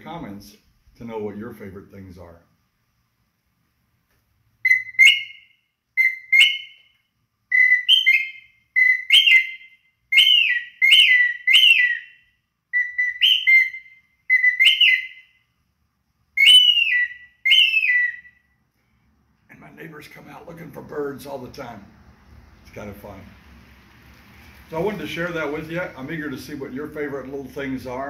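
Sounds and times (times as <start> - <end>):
bird whistle two-note calls: 4.6 - 6.9, 7.5 - 12.2, 12.8 - 15.3, 16.4 - 18.4.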